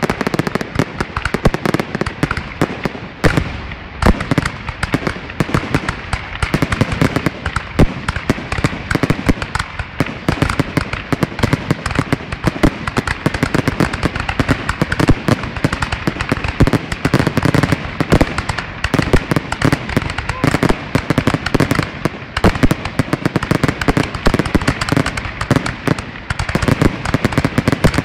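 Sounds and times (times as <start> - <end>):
fireworks bangs and crackles: 0.0 - 28.0.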